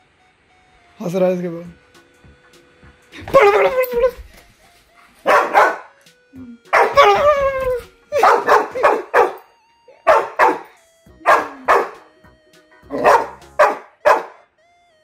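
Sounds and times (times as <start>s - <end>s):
puppy barking: 5.2s - 6.0s, 6.7s - 12.0s, 12.9s - 14.5s.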